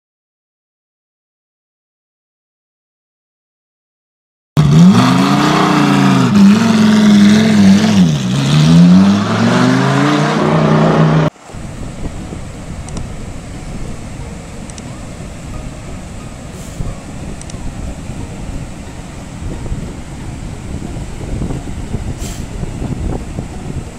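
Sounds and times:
surf washing over rocky shore: 11.3 - 23.9.

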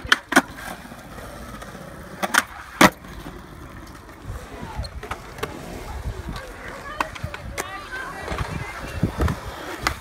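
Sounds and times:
skateboard clacking on concrete: 0.0 - 10.0
wheels rolling on concrete: 0.0 - 10.0.

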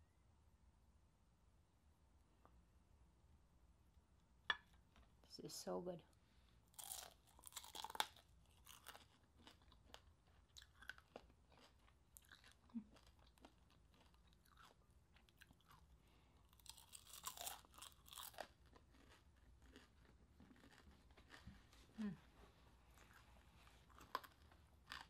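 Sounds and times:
crunching and chewing: 6.7 - 25.0.

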